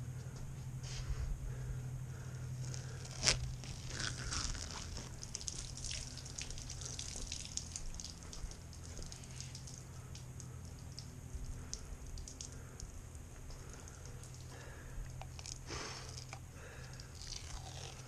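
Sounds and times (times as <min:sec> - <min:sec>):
low hum: 0:00.0 - 0:18.0
foil tape crackling as peeled: 0:02.6 - 0:07.6.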